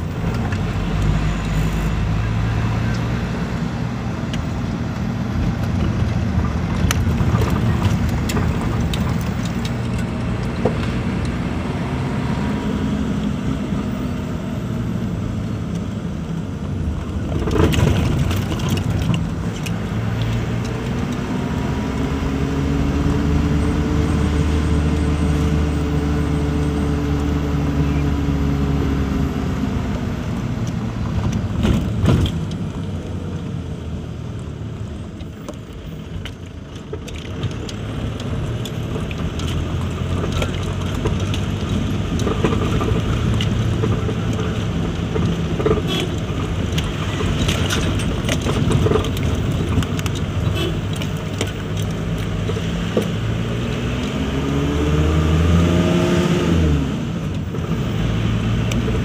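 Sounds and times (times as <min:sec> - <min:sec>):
vehicle engine and road noise: 0:00.0 - 0:59.0
knocks and rattles: 0:05.4 - 0:11.0, 0:16.9 - 0:21.2, 0:31.1 - 0:32.9, 0:35.5 - 0:53.4.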